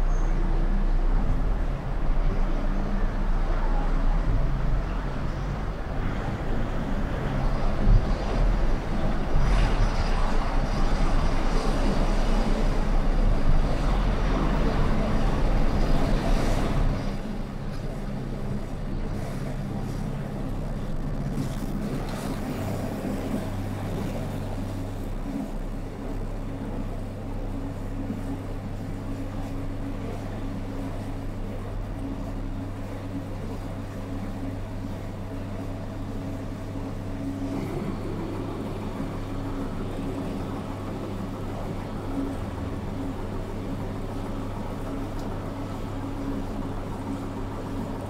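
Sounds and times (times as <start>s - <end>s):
car engine idling hum: 0.0s - 48.0s
car engine and tyre noise: 4.2s - 31.4s.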